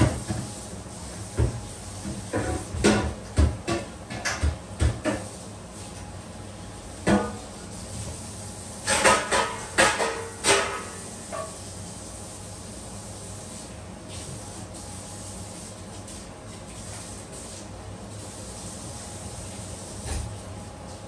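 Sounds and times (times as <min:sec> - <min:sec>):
kitchen things clattering: 0:08.9 - 0:11.5.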